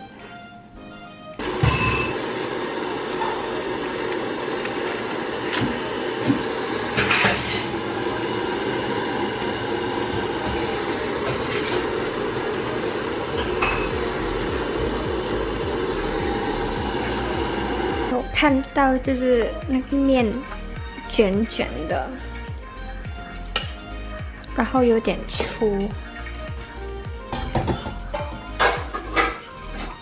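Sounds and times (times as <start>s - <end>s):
steel pot knocking and clinking: 13.3s - 14.1s.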